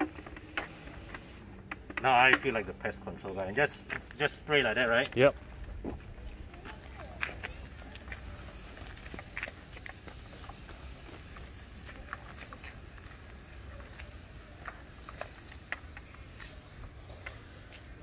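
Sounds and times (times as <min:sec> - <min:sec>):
pressure sprayer hissing: 0:00.0 - 0:01.4, 0:06.3 - 0:18.0.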